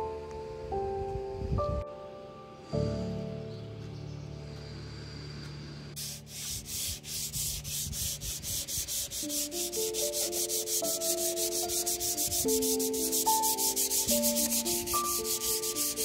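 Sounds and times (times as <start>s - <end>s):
soft background music: 0.0s - 16.0s
hand sanding wood: 6.0s - 16.0s.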